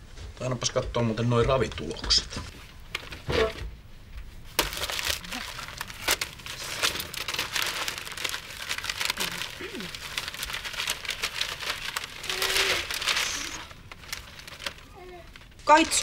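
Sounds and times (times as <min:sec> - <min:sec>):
newspaper pages rustling: 0:04.3 - 0:16.0.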